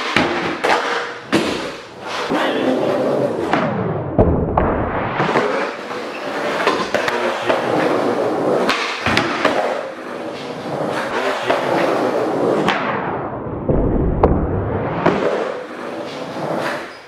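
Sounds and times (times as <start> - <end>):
skateboard clacks: 0.0 - 3.8, 4.6 - 12.9
skateboard wheels rolling on concrete: 0.0 - 4.0, 4.6 - 13.1, 14.5 - 17.0.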